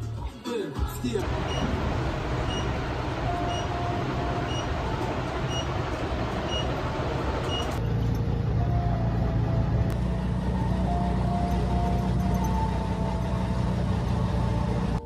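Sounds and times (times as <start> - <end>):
heavy motor rumble: 0.8 - 15.0
vehicle noise: 1.0 - 15.0
soft background music: 8.5 - 15.0.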